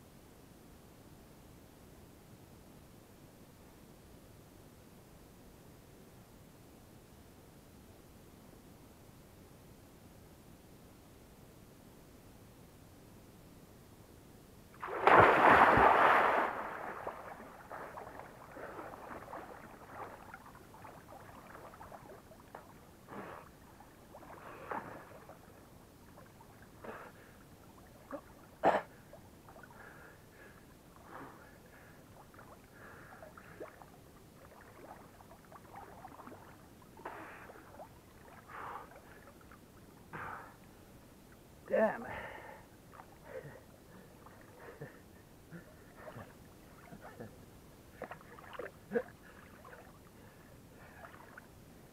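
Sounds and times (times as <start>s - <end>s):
person splashing into lake: 14.8s - 21.9s
swimming stroke splashes: 14.8s - 22.6s
water sloshing and lapping: 14.8s - 31.2s, 32.1s - 39.6s, 45.6s - 51.5s.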